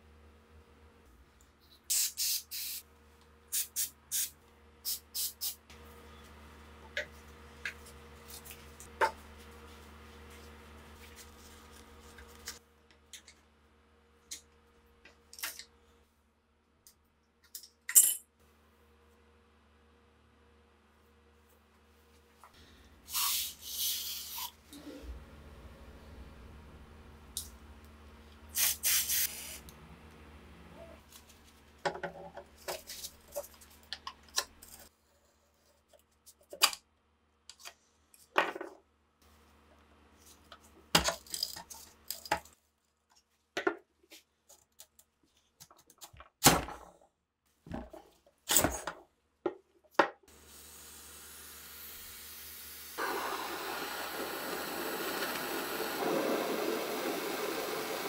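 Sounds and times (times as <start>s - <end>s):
aerosol spray hiss: 1.9s - 2.8s, 23.1s - 24.6s, 28.6s - 29.6s, 50.5s - 58.0s.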